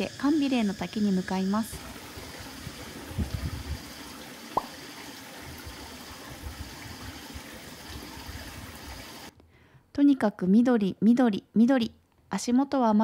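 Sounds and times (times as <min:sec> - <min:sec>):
running water hiss: 0:00.0 - 0:09.3.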